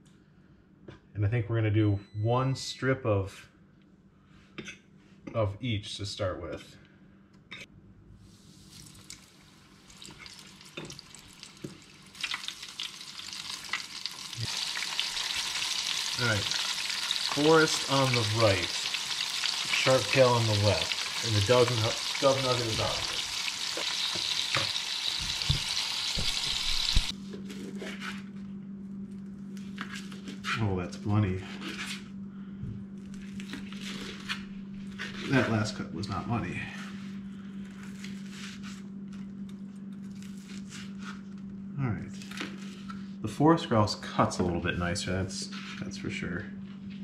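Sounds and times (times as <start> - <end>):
low steady hum: 0.0 - 47.0
meat frying in oil: 8.5 - 27.1.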